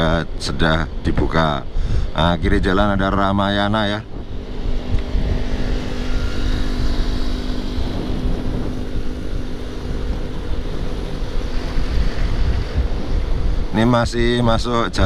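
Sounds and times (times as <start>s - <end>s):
faint engine hum: 0.0s - 15.0s
vehicle road rumble: 0.0s - 15.0s.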